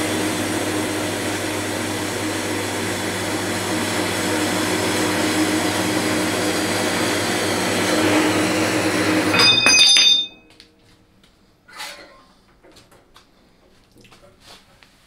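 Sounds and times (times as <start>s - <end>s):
metal-cutting bandsaw running: 0.0s - 10.4s
metallic clinks: 9.4s - 10.5s.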